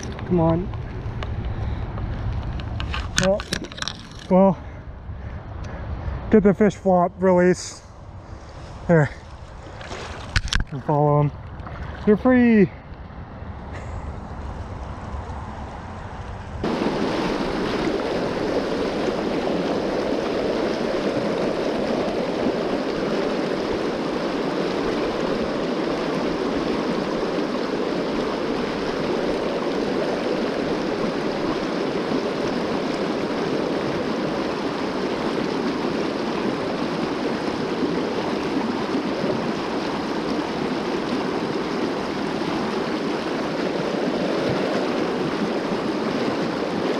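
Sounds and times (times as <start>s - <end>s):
river water rushing over rocks: 16.6s - 46.9s.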